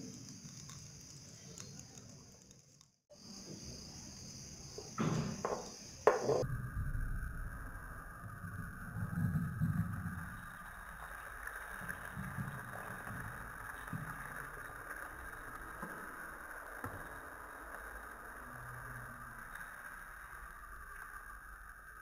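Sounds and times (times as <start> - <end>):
faint clicks: 0.0 - 3.0.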